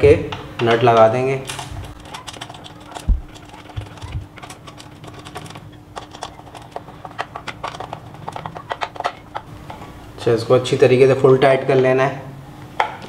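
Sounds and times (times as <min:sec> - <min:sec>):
screwdriver and bolts clicking: 0:01.5 - 0:09.5.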